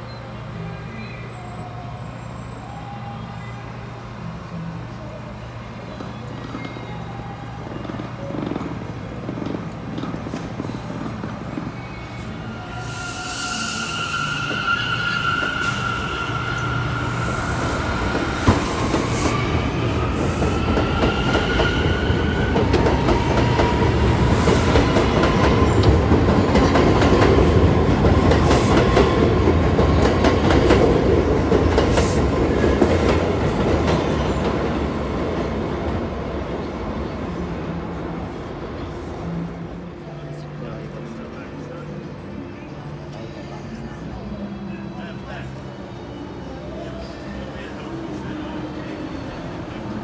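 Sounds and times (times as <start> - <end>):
train rumble and rattle: 0.0 - 50.0
train wheels squealing: 10.6 - 23.8.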